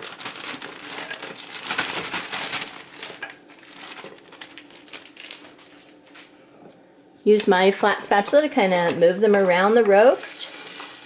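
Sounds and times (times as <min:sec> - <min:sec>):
plastic bag crinkling: 0:00.0 - 0:06.4, 0:10.4 - 0:11.0.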